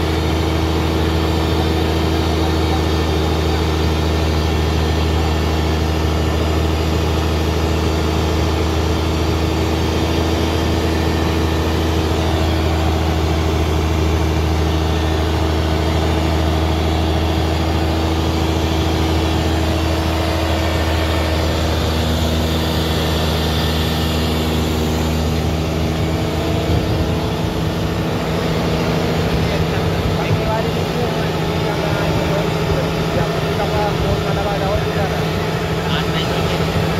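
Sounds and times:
boat engine humming: 0.0s - 36.9s.

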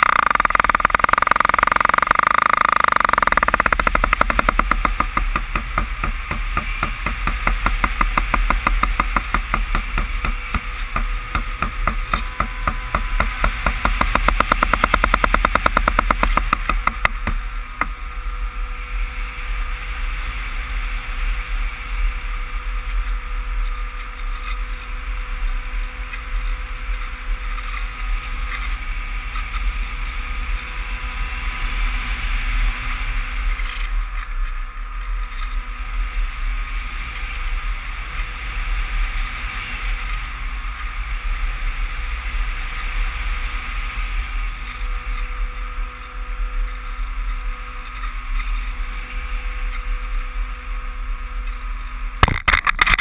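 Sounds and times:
faint steady drone: 0.0s - 53.0s.

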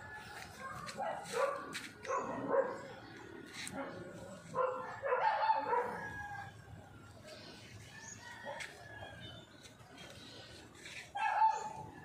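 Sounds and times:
faint background sounds: 0.0s - 12.0s.

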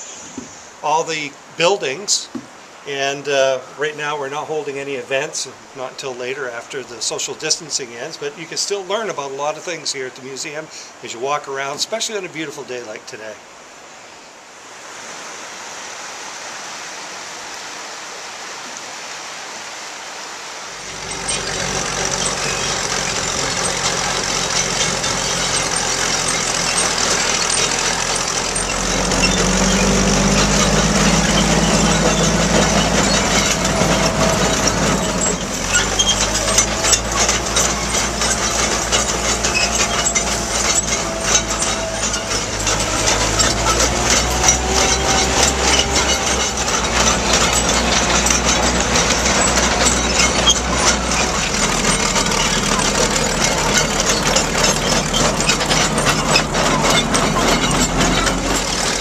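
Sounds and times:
truck engine running: 20.8s - 59.0s
fast clatter of clicks: 20.9s - 59.0s.

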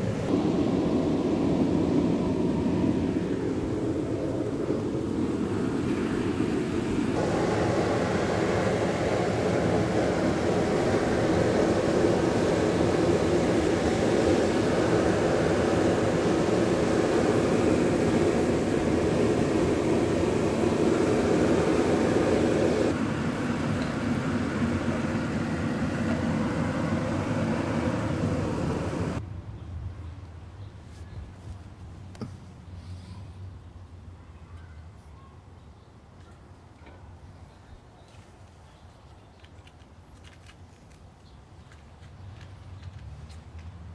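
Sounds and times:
propane burner rushing: 0.0s - 29.2s.

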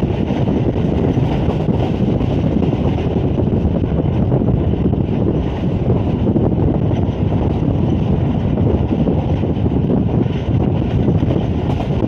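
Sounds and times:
train running noise: 0.0s - 12.0s
wind buffeting microphone: 0.0s - 12.0s.

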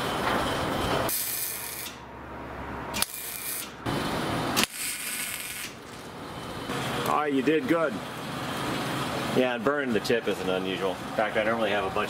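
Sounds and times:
welding arc hiss and crackle: 1.1s - 2.0s, 3.0s - 3.8s, 4.5s - 6.1s.

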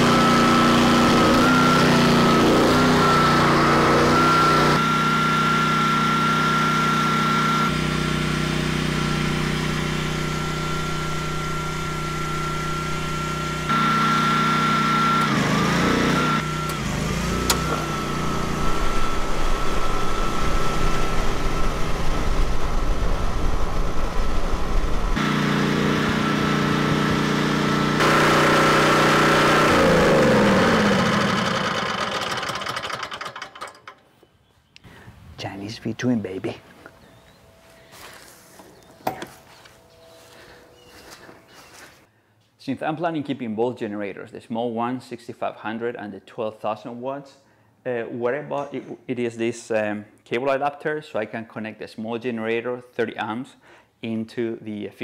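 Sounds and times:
generator engine running: 0.0s - 34.2s, 34.9s - 42.0s.

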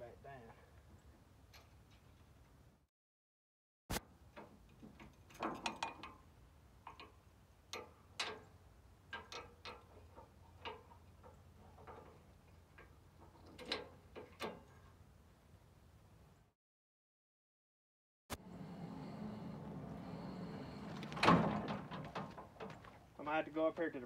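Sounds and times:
metal jack leg clicking and clanking: 4.4s - 6.2s, 6.8s - 14.8s.

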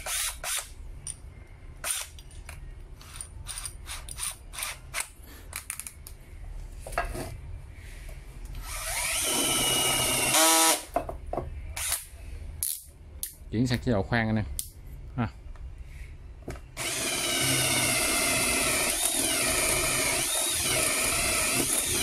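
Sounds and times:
drill boring into wood: 0.0s - 0.6s, 8.6s - 10.9s, 16.8s - 22.0s.

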